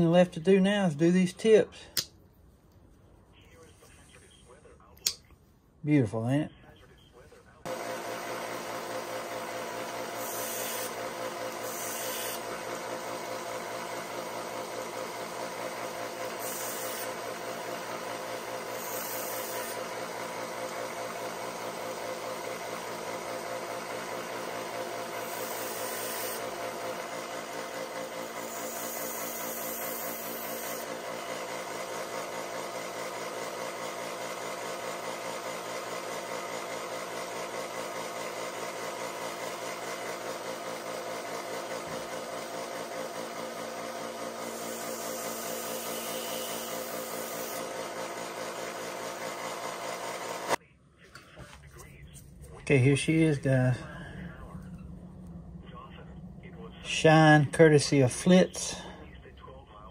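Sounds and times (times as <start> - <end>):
belt sander running: 7.7 - 50.6, 52.8 - 55.6.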